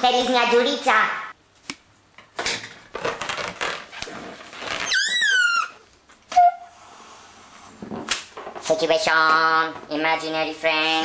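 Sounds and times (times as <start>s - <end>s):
adhesive tape rustling and tearing: 2.9s - 5.7s
balloon rubber squeaking: 3.3s - 6.7s.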